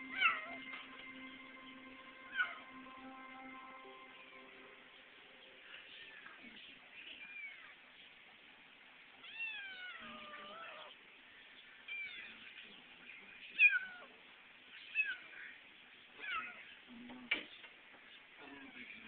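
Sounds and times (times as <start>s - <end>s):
kitten meowing: 9.2s - 10.9s.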